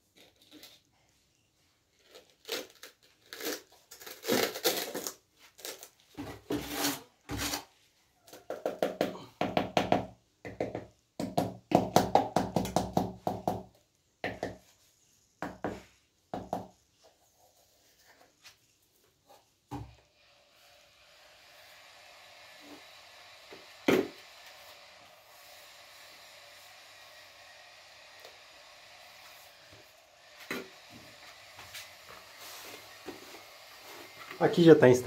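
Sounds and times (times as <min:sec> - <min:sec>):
trowel scraping and patting mortar: 0:02.2 - 0:07.7.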